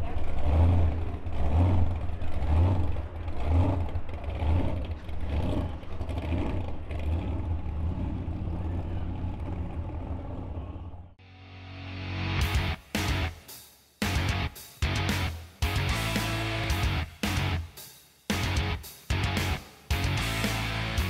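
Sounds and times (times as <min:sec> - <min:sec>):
car engine rumbling: 0:00.0 - 0:11.2.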